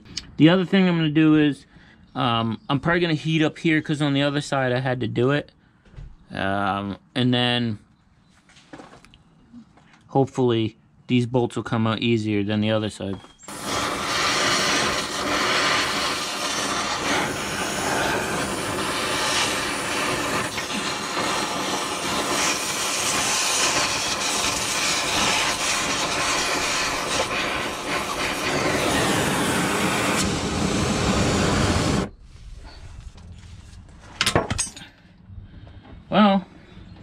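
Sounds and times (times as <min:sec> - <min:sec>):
cutting torch flame hissing: 0:13.4 - 0:32.7.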